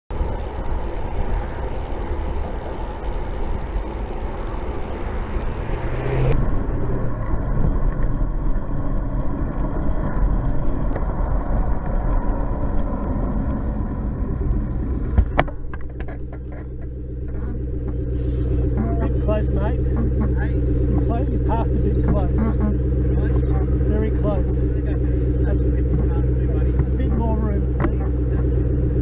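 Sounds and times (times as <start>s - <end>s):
wind noise: 0.1s - 17.6s
car traffic: 0.1s - 29.0s.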